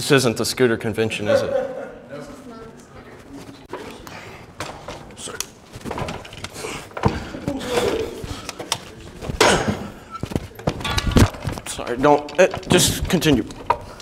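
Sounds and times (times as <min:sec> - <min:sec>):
scooter knocking and clattering: 0:05.9 - 0:14.0.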